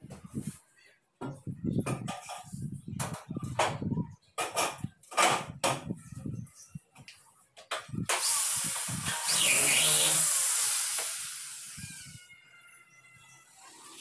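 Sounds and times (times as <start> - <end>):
power tool whirring: 8.1 - 12.2.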